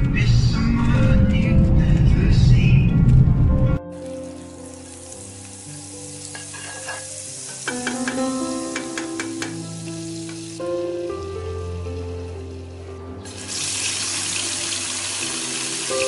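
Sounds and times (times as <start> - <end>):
butter sizzling in a pan: 4.2 - 12.6, 13.2 - 16.0
spatula clicking against pan: 7.6 - 9.6.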